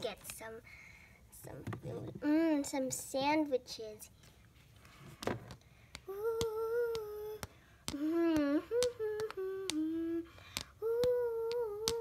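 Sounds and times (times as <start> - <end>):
child humming: 6.1 - 12.0.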